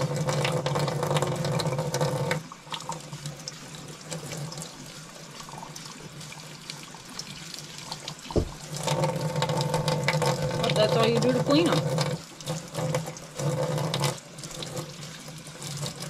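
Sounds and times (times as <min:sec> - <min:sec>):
small water splashes: 0:02.2 - 0:16.0
tap running into steel sink: 0:08.3 - 0:10.4
low thump: 0:08.4 - 0:08.6.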